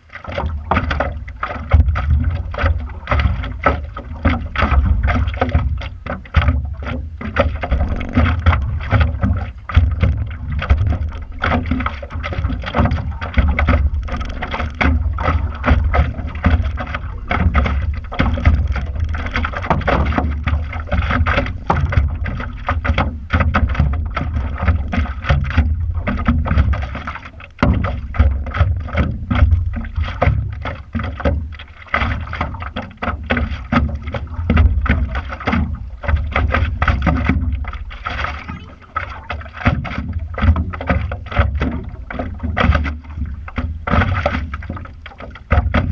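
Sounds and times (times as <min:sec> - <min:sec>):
steady low rumble: 0:00.0 - 0:32.8
water slapping against board: 0:00.0 - 0:45.9.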